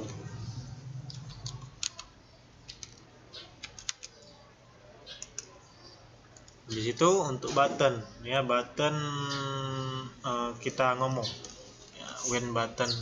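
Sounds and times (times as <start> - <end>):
keyboard typing: 1.0 - 5.6
mouse clicks: 5.1 - 5.6.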